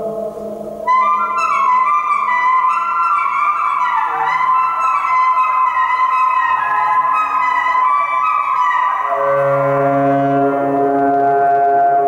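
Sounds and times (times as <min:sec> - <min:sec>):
low sustained drone: 0:00.0 - 0:02.1
saxophone with electronics: 0:00.0 - 0:12.0.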